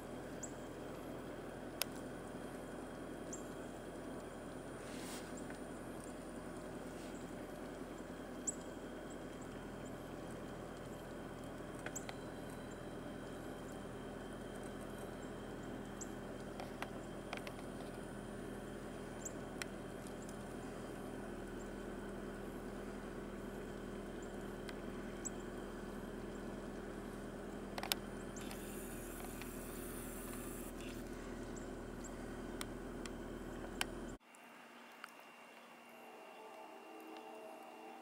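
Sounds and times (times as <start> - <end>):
distant engine humming: 0.0 - 34.2.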